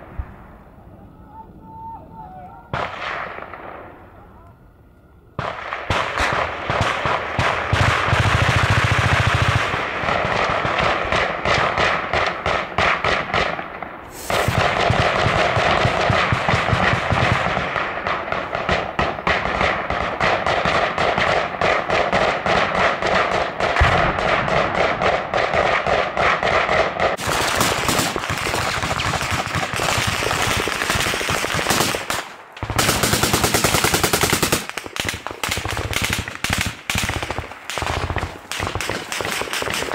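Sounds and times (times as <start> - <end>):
automatic gunfire: 5.4 - 13.5, 18.3 - 39.9.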